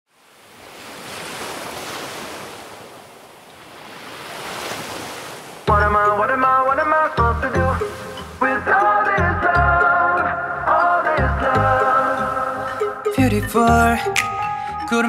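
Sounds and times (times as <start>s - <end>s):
ocean surf washing: 0.1s - 13.1s
upbeat music with bass beat: 5.7s - 15.0s.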